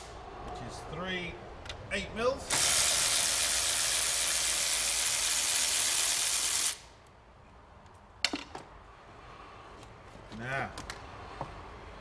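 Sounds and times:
loud steady hiss: 0:02.4 - 0:07.0.

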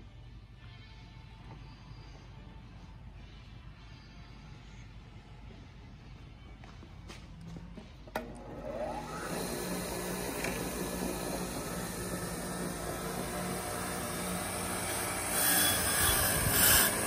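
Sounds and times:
bench grinder whining and humming: 0:08.2 - 0:17.0.

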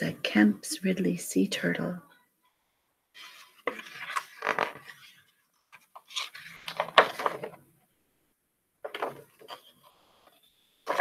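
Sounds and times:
book pages turning: 0:03.2 - 0:07.6, 0:08.9 - 0:11.0.

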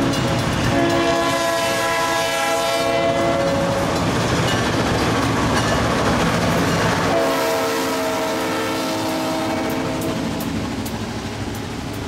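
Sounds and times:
diesel locomotive engines: 0:00.0 - 0:12.0
freight cars rolling on rails: 0:00.0 - 0:12.0
multi-note locomotive horn: 0:00.7 - 0:04.0, 0:07.0 - 0:10.6.

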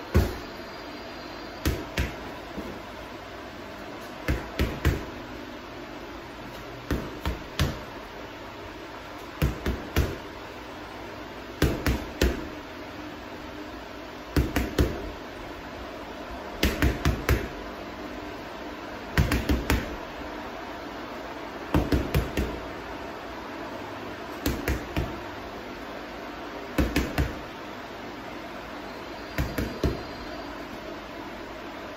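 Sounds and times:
gloved fists punching heavy bag: 0:00.1 - 0:00.5, 0:01.6 - 0:02.3, 0:04.2 - 0:05.1, 0:06.9 - 0:07.9, 0:09.4 - 0:10.3, 0:11.6 - 0:12.5, 0:14.4 - 0:15.0, 0:16.6 - 0:17.6, 0:19.2 - 0:19.9, 0:24.4 - 0:25.2, 0:26.8 - 0:27.4, 0:29.4 - 0:30.1.

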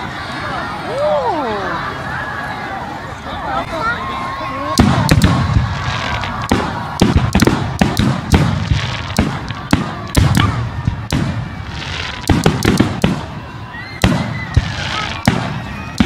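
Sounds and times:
firework shells bursting: 0:04.8 - 0:13.4.

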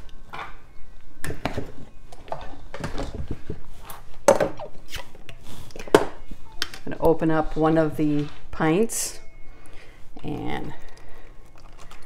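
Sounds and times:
kitchen items knocking and clattering: 0:01.2 - 0:03.6, 0:04.2 - 0:04.8.

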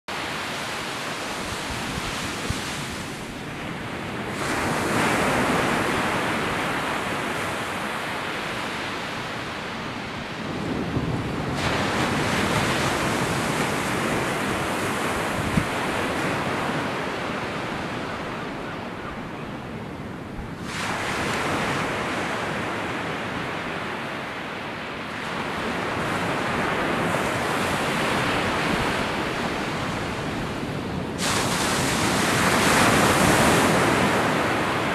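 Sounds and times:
surf breaking on beach: 0:10.4 - 0:19.3, 0:20.5 - 0:23.8, 0:25.1 - 0:34.9.

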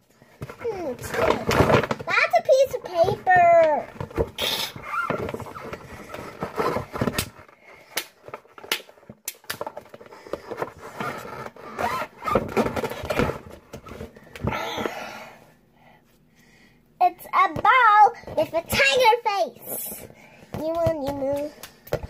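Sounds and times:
packaging rustling: 0:00.4 - 0:14.5
toys clicking and knocking: 0:20.5 - 0:22.0.

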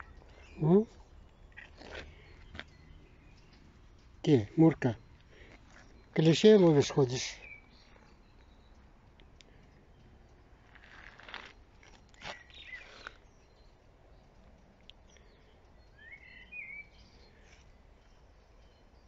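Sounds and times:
bird chirping: 0:00.0 - 0:19.0
crunching footsteps: 0:00.3 - 0:02.8, 0:10.6 - 0:13.2.

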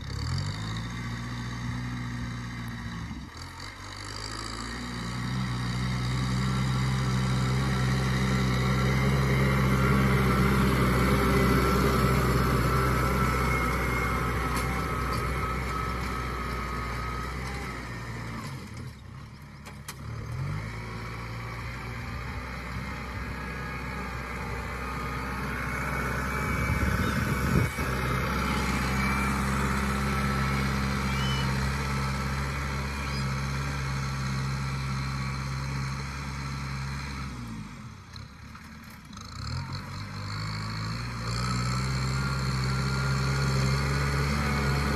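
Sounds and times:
tractor engine running: 0:00.0 - 0:44.9.

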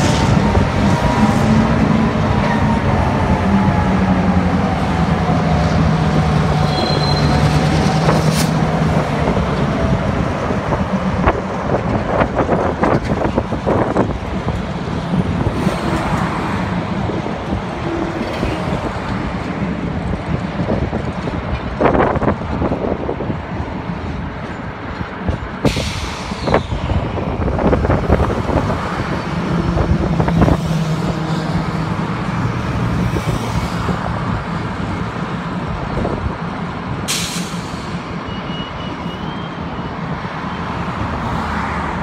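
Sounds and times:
diesel locomotive droning: 0:00.0 - 0:42.0
air brake hissing: 0:25.6 - 0:26.7, 0:37.1 - 0:38.0.

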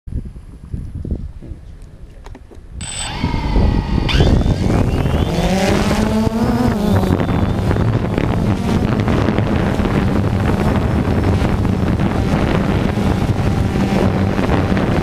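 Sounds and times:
drone motors beep: 0:02.8 - 0:08.9
drone propeller whine: 0:02.8 - 0:15.0.

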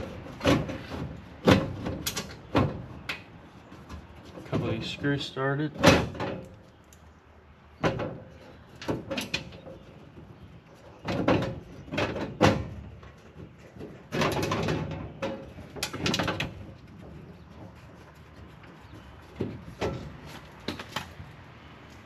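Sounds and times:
sheet metal clicks and knocks: 0:11.0 - 0:17.2.

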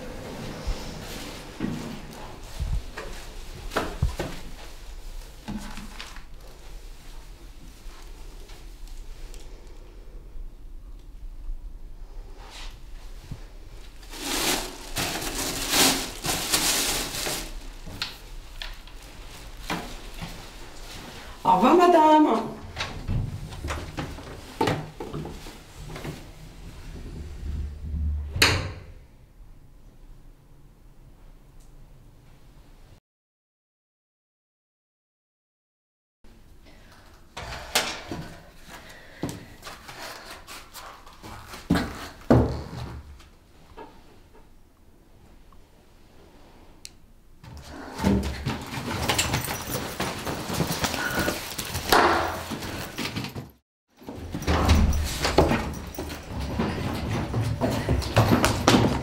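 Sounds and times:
rustling and crinkling: 0:00.0 - 0:10.2, 0:12.2 - 0:28.2, 0:38.1 - 0:44.3, 0:47.5 - 0:59.0
door rattling and bumping: 0:54.1 - 0:59.0.

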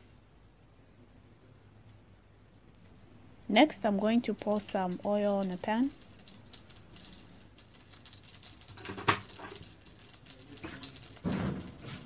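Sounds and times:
oil trickling into pan: 0:03.7 - 0:12.0
knock: 0:11.2 - 0:11.7.

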